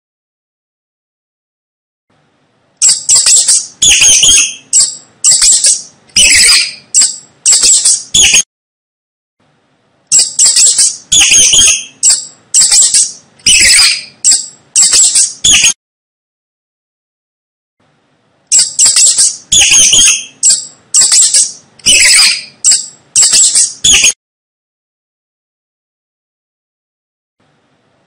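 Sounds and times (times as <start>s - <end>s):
mice squeaking: 2.8s - 8.4s, 10.1s - 15.8s, 18.5s - 24.2s.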